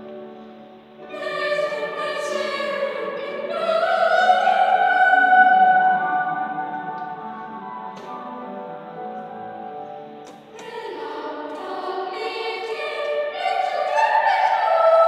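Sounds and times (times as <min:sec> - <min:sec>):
children's choir singing: 0:01.0 - 0:15.0.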